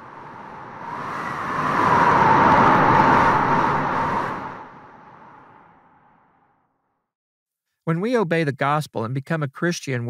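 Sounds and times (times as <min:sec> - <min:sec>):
long whoosh: 0:00.0 - 0:06.6.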